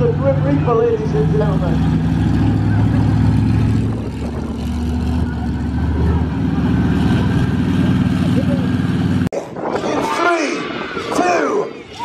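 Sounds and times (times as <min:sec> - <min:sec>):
truck engine running: 0:00.0 - 0:09.3.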